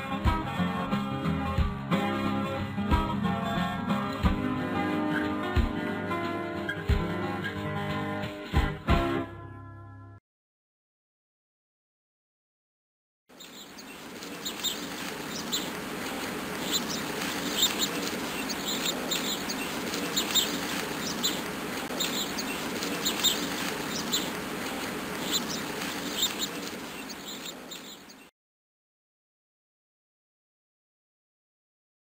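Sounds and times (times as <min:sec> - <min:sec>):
birds chirping: 0:13.3 - 0:28.3
creek splashing over rocks: 0:13.4 - 0:28.3.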